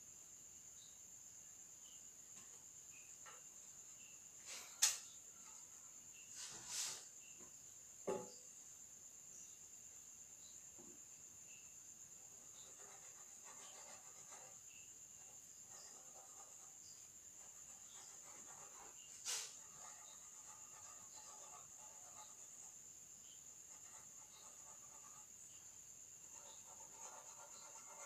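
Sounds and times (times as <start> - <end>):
cricket trilling: 0.0 - 28.0
sharp knocks: 8.0 - 8.4
pencil scratching on paper: 12.4 - 14.6, 15.2 - 22.8, 23.6 - 25.3, 26.2 - 28.0.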